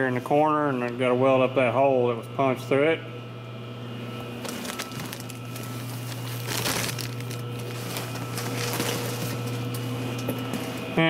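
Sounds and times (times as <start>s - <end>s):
steady low hum: 0.0s - 11.0s
crunching rustling handling: 4.2s - 10.8s.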